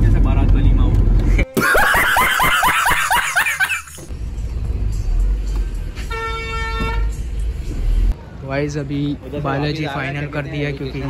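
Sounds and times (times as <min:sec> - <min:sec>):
car engine rumble and road noise: 0:00.0 - 0:01.5, 0:02.9 - 0:11.0
man laughing loudly: 0:01.5 - 0:04.0
horn-like tone: 0:06.1 - 0:07.2.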